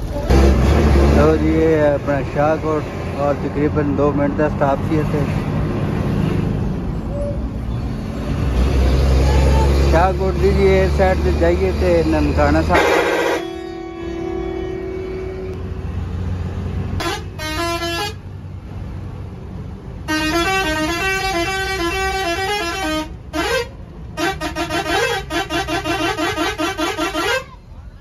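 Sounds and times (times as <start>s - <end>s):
engine and road drone: 0.0s - 28.0s
bus musical horn: 9.0s - 9.9s, 12.5s - 15.9s, 17.0s - 18.4s, 20.0s - 27.7s.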